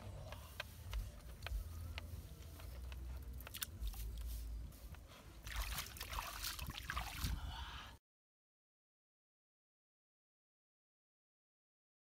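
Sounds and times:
hands patting wet mud: 0.0 - 7.4
splashing in shallow water: 3.4 - 4.1, 5.4 - 7.4.

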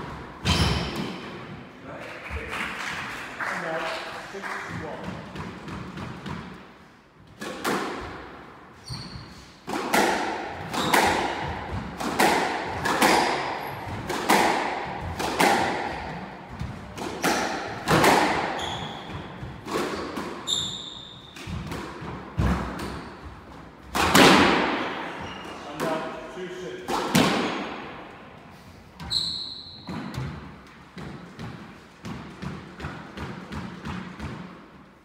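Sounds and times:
squash ball hitting rackets and walls: 0.0 - 1.7, 4.8 - 35.0
shoes squeaking on wooden floor: 8.8 - 9.5, 18.5 - 19.4, 20.0 - 21.4, 24.8 - 25.7, 29.0 - 30.2.

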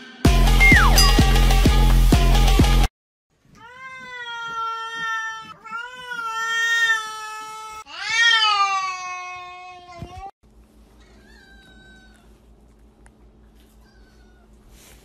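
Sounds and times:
electronic music: 0.5 - 2.2
cat yowling: 3.6 - 10.0, 11.0 - 12.3, 13.8 - 14.6.

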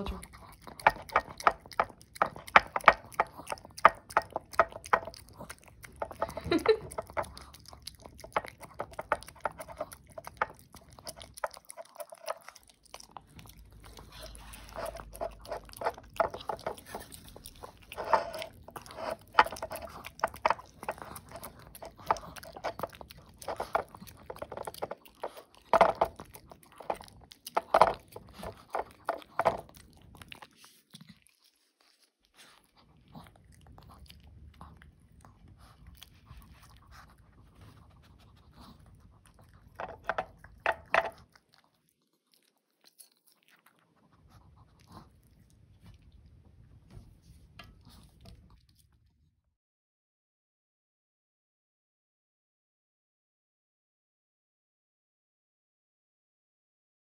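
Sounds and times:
dog licking from a bowl: 0.0 - 46.2.

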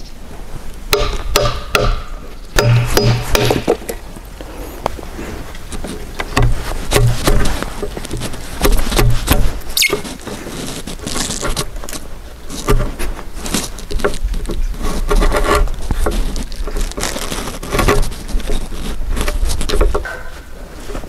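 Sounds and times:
wood fibres crunching and scraping: 0.0 - 21.0
chisel knocking into wood: 1.0 - 3.8.

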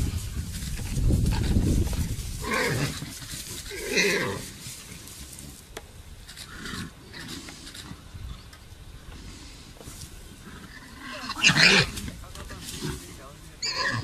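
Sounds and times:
warthog squealing: 10.6 - 12.0, 13.6 - 14.0.

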